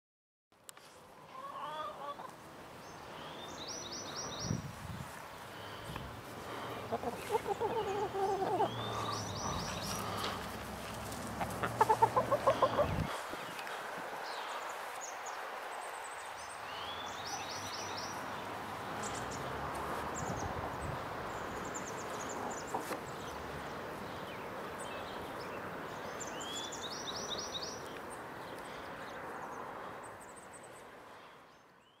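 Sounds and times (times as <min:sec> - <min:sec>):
outdoor background noise: 0:00.5 - 0:32.0
hens clucking: 0:01.2 - 0:02.4, 0:06.7 - 0:13.7, 0:21.9 - 0:23.4
small bird calling: 0:05.5 - 0:10.4, 0:11.6 - 0:13.7.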